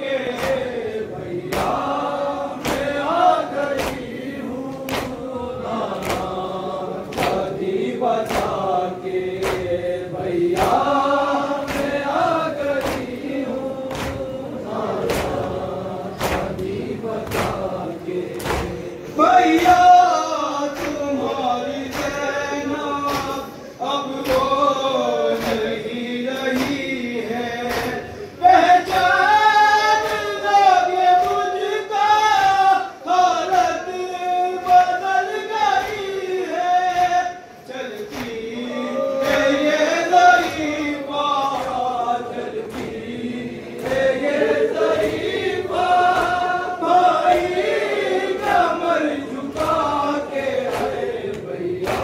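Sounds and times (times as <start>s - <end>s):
voices chanting a lament: 0.0s - 52.0s
chest-beating slaps: 0.3s - 0.8s, 1.4s - 19.9s, 20.7s - 22.2s, 23.0s - 23.5s, 25.3s - 25.8s, 26.4s - 26.9s, 35.8s - 36.2s, 37.9s - 38.5s, 44.8s - 52.0s.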